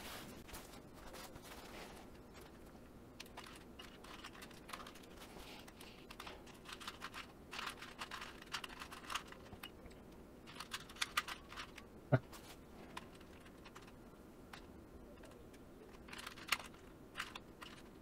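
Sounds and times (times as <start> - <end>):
plastic puzzle cube clicking: 3.2 - 9.8, 10.5 - 11.8, 13.0 - 18.0.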